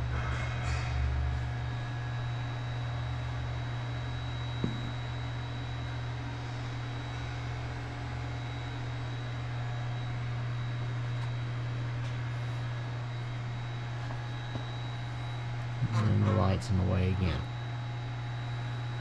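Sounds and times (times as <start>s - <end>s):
equipment humming: 0.0s - 19.0s.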